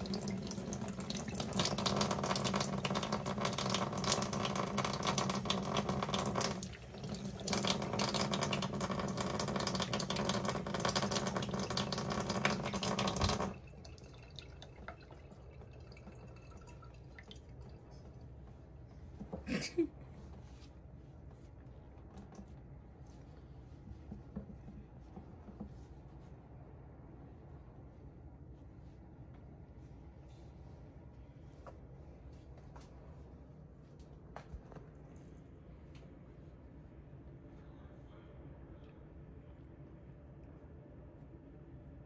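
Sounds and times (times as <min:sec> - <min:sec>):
faucet water splashing over hands: 0:00.0 - 0:18.1.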